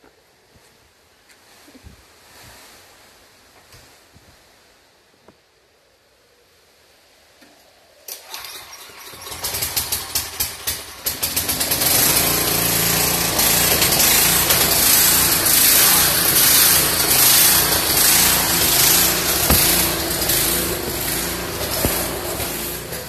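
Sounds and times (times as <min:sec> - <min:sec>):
generator engine starting and running: 0:08.1 - 0:23.0.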